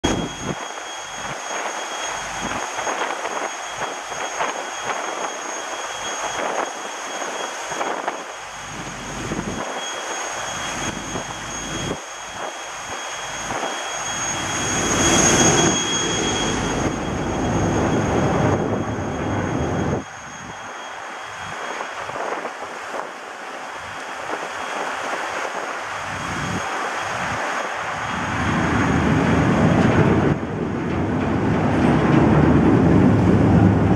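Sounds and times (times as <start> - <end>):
faint high whine: 0.0 - 33.9
wind buffeting microphone: 0.0 - 33.9
water rushing along ship hull: 22.5 - 33.9.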